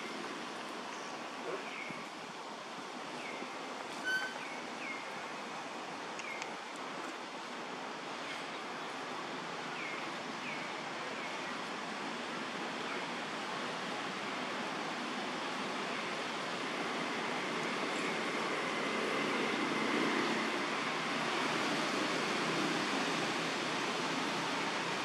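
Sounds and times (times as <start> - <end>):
forest ambience hiss: 0.0 - 25.0.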